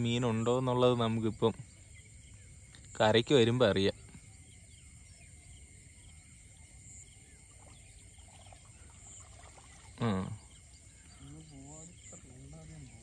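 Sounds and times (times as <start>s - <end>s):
water trickling off net: 8.3s - 10.4s.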